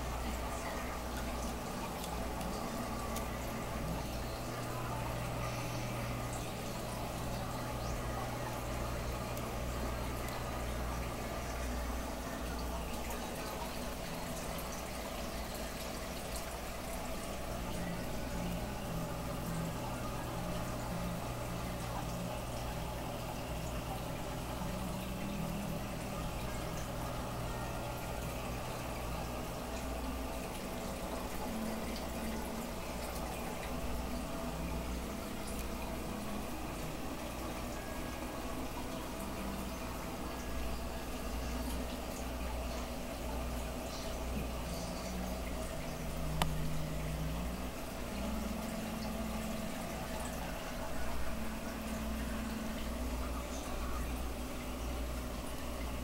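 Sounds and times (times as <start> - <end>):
aquarium water bubbling: 0.0 - 56.0
low equipment hum: 0.0 - 56.0.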